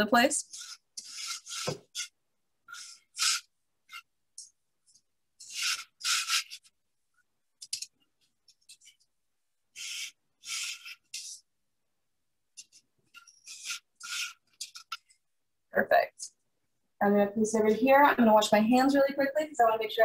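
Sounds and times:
flour rubbed through metal sieve: 0:00.0 - 0:04.1, 0:05.4 - 0:06.8, 0:09.7 - 0:11.5, 0:12.6 - 0:15.0.

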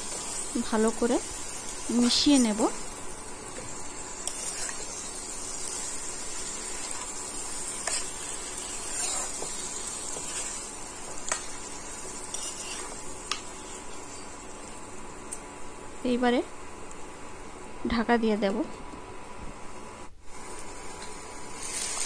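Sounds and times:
meat sizzling in hot oil: 0:00.0 - 0:15.2, 0:20.3 - 0:22.0.

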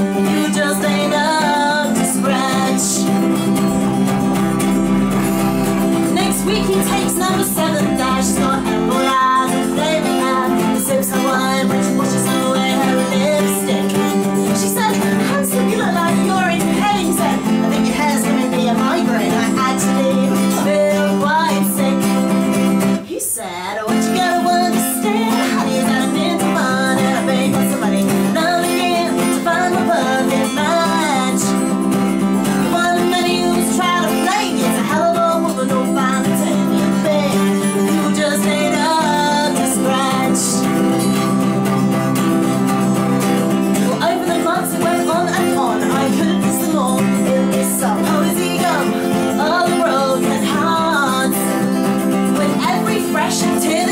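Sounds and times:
strummed acoustic guitar: 0:00.0 - 0:53.9
woman singing: 0:00.0 - 0:53.9.

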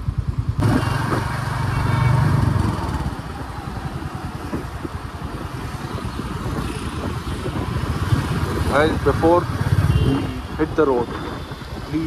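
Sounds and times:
motorcycle engine running: 0:00.0 - 0:03.2.

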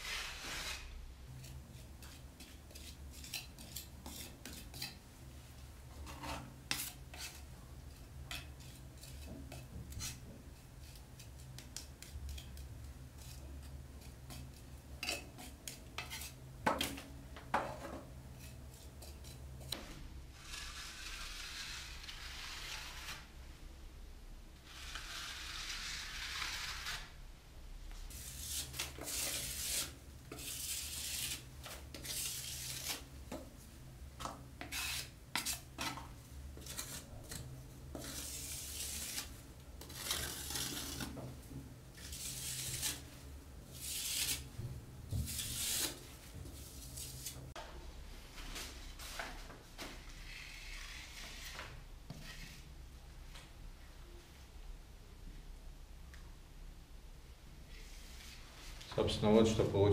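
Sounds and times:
trowel scraping plaster: 0:00.0 - 0:05.0, 0:06.0 - 0:07.5, 0:08.3 - 0:17.1, 0:17.9 - 0:23.3, 0:24.7 - 0:27.2, 0:28.1 - 0:33.5, 0:34.2 - 0:41.4, 0:42.0 - 0:43.1, 0:43.8 - 0:44.5, 0:45.2 - 0:47.5, 0:49.9 - 0:52.7.

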